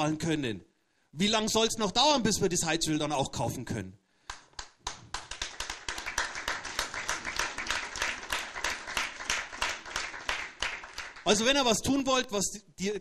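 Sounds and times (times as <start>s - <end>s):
audience applauding: 4.3s - 11.5s.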